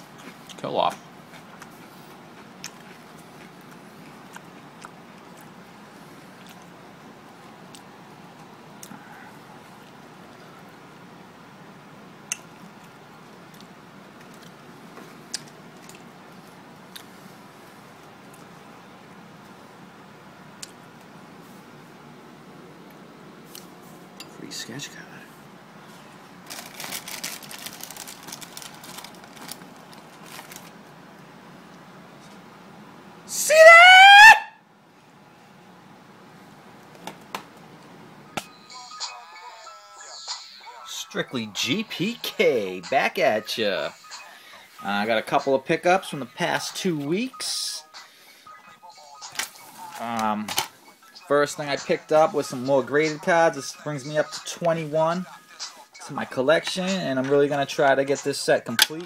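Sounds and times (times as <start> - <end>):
cardboard and plastic crackles and scrapes: 26.4 - 30.8.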